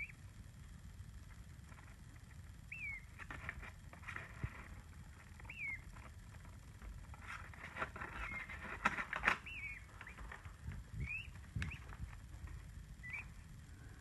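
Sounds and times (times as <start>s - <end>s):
peachick peeping: 0.0s - 0.4s, 1.3s - 14.0s
pecking taps and scrapes: 3.2s - 9.4s.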